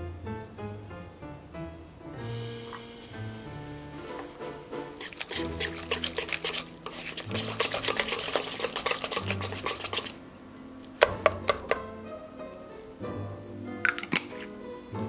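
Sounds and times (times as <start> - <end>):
whisk scraping in metal bowl: 2.7 - 10.6
whisk knocking against bowl: 3.9 - 10.2, 11.0 - 11.9.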